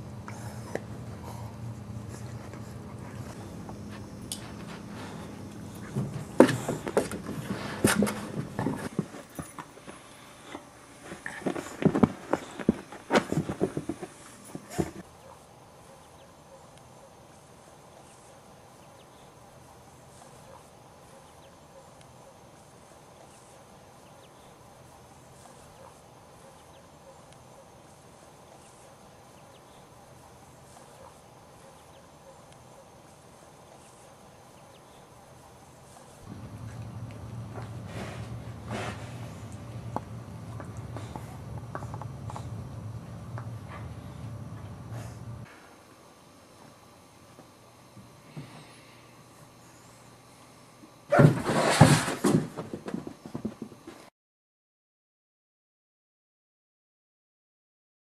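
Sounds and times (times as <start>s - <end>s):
faint outdoor background: 0.0s - 54.1s
dogs scuffling and wrestling: 0.3s - 15.1s, 36.0s - 45.4s.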